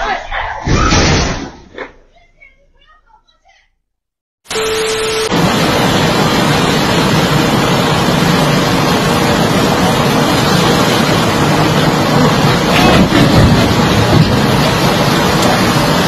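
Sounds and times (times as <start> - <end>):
excavator engine rumbling: 4.5 - 16.0.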